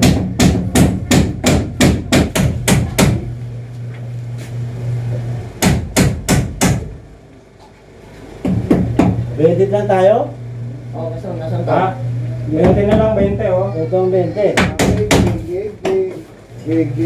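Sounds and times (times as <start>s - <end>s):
hammer striking: 0.0s - 3.2s, 5.6s - 6.9s
low steady hum: 0.0s - 17.0s.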